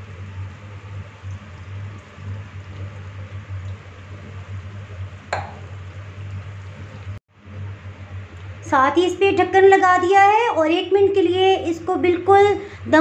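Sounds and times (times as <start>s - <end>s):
omelette sizzling in frying pan: 0.0s - 7.2s
low hum: 0.0s - 12.0s.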